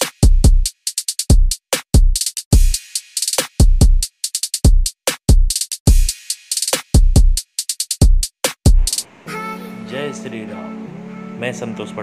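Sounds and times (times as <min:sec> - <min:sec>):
hi-hat and snare hits: 0:00.0 - 0:09.1
deep kick drums: 0:08.0 - 0:08.9.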